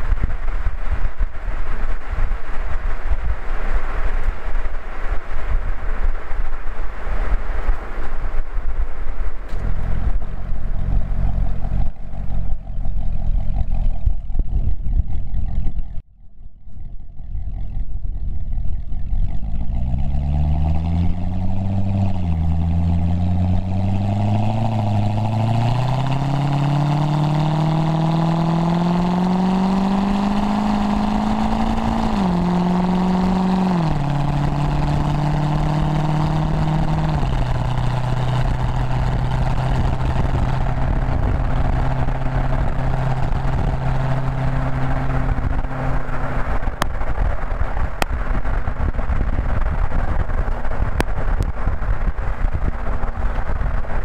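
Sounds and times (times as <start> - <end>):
exhaust pops: 0.0 - 16.0, 16.7 - 54.0
car engine rumbling: 0.0 - 54.0.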